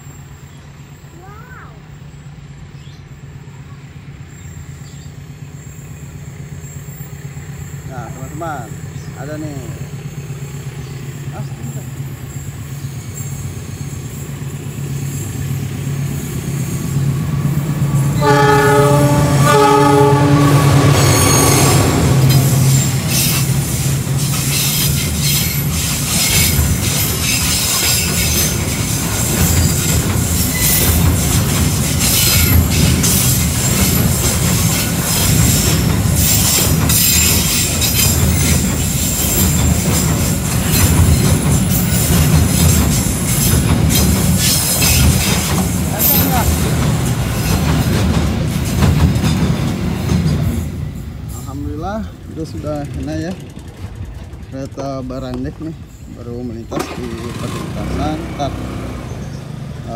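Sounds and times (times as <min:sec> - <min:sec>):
locomotive engine hum: 0:00.0 - 0:59.9
high wheel squeal: 0:04.2 - 0:52.1
train horn blast: 0:18.0 - 0:22.8
wheels clattering over rail joints: 0:21.0 - 0:59.8.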